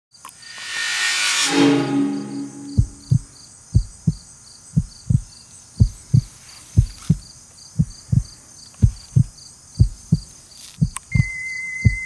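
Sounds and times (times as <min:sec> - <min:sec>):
faint high pulsing chirp: 0:00.4 - 0:04.2, 0:10.9 - 0:12.0
heartbeat thumps: 0:02.6 - 0:12.0.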